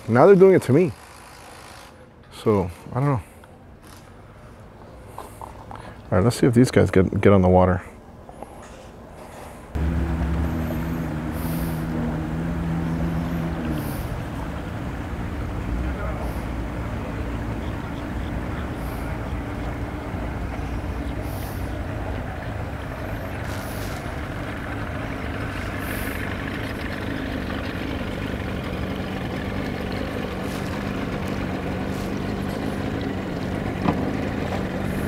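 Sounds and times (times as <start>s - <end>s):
outboard motor idling: 9.8s - 35.0s.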